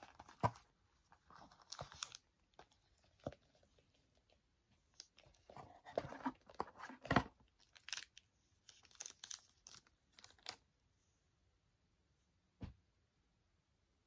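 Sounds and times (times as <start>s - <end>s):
plastic sleeve crinkling: 6.2s - 10.6s.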